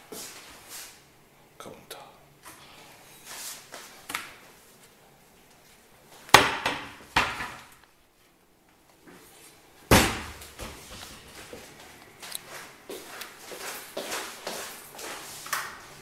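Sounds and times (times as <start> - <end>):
cabinet doors knocking shut: 6.4 - 7.7.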